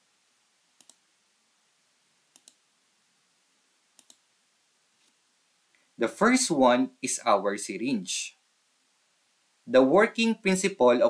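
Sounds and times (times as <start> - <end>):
faint computer mouse clicks: 0.8 - 1.0, 2.3 - 2.6, 4.0 - 4.2.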